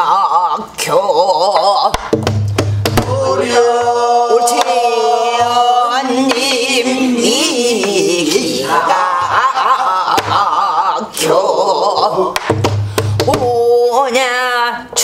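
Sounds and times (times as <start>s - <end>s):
woman singing held line: 0.0s - 2.0s, 3.0s - 12.4s
barrel drum strikes: 2.0s - 3.3s, 12.4s - 13.4s.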